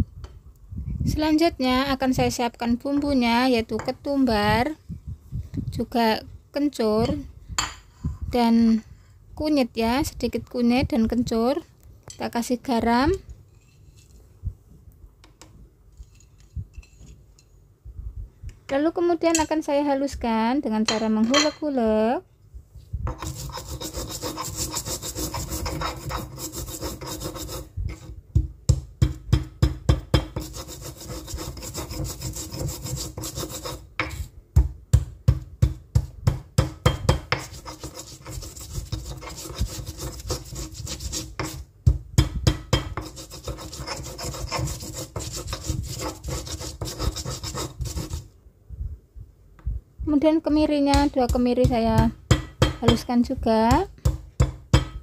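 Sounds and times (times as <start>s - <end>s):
stone pestle grinding in mortar: 23.1s - 34.3s, 35.3s - 48.3s
pestle pounding strokes: 23.1s - 48.3s, 50.9s - 55.0s.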